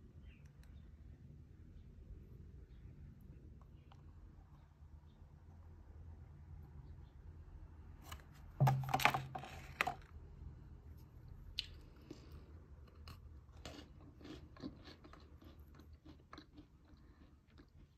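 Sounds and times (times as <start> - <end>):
biscuit stick crunching: 11.5 - 17.9
crunchy chewing: 11.5 - 17.9.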